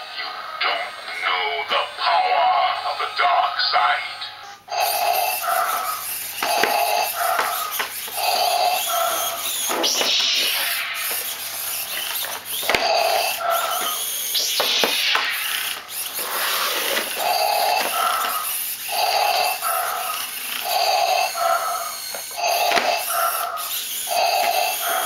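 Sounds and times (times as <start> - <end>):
mechanical breathing sound effect: 4.3 - 25.0
bursts of hiss: 5.5 - 20.5.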